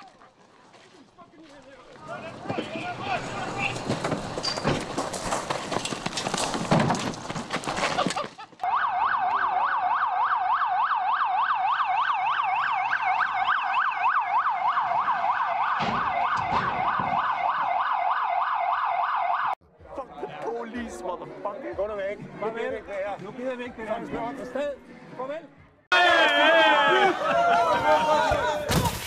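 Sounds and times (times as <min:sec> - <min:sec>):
rough commotion with knocks: 0:01.9 - 0:08.6, 0:15.7 - 0:17.4
police siren yelping: 0:08.6 - 0:19.6.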